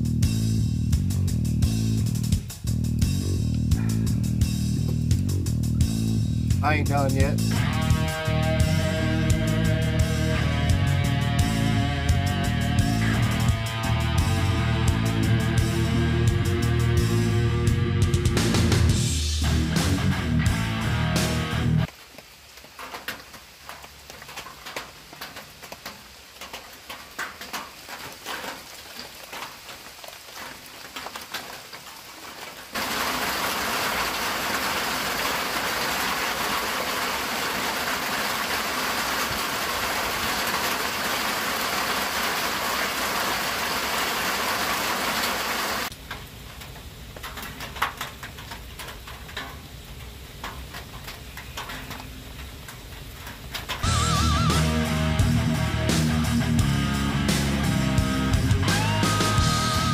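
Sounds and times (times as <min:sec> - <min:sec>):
campfire crackling and popping: 0:00.0 - 0:16.0, 0:18.4 - 0:59.9
heavy rain hissing: 0:00.0 - 0:59.9.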